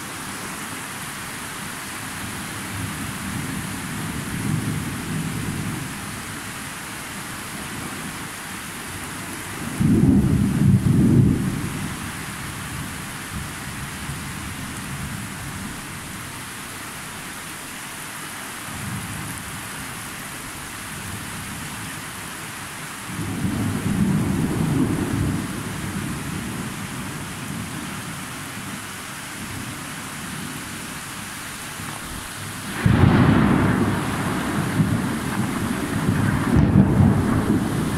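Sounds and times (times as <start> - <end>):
steady rain falling: 0.0 - 37.9
thunder rumbling: 9.7 - 11.7, 32.6 - 37.9.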